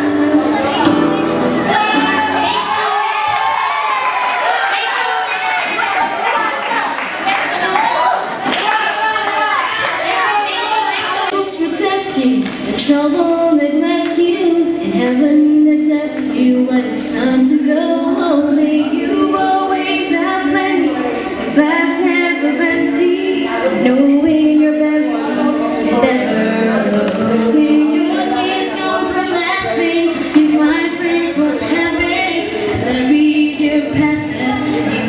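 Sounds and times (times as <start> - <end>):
women singing a cappella: 10.6 - 35.0.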